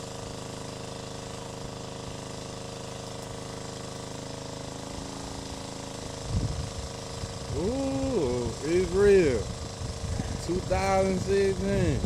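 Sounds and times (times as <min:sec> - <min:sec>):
engine droning steadily: 0:00.0 - 0:12.0.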